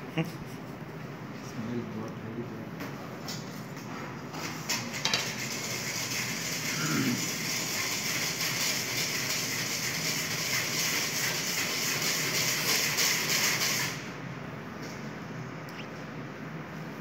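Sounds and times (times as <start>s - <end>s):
low background noise: 0.0s - 4.4s.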